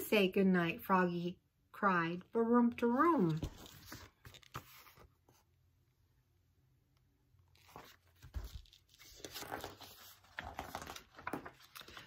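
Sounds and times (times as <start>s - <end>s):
book pages turning: 3.0s - 5.5s, 7.4s - 12.0s.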